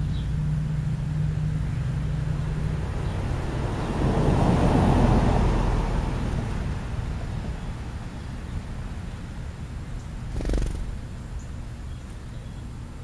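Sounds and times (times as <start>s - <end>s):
low engine hum: 0.0s - 13.0s
car driving past: 2.7s - 6.7s.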